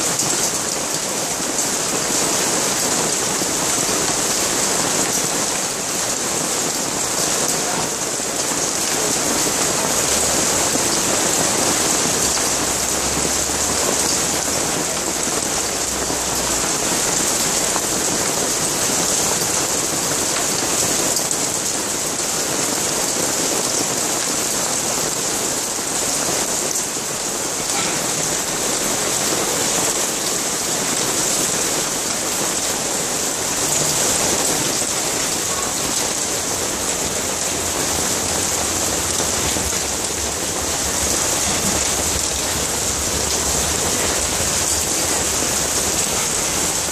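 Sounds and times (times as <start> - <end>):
heavy rain on paving: 0.0 - 46.9.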